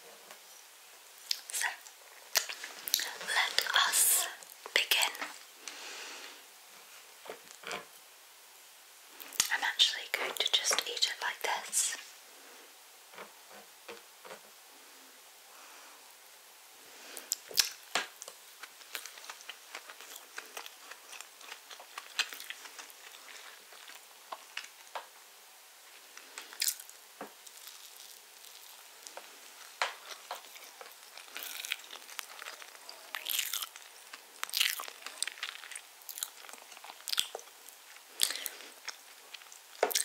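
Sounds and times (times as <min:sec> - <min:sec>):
person chewing cake: 0:17.2 - 0:25.1, 0:25.9 - 0:40.0.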